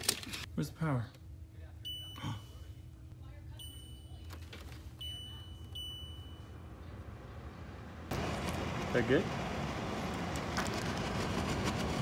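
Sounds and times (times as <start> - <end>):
low steady hum: 0.0 - 10.4
high control panel beeps: 1.8 - 2.7, 3.6 - 4.3, 5.0 - 6.7.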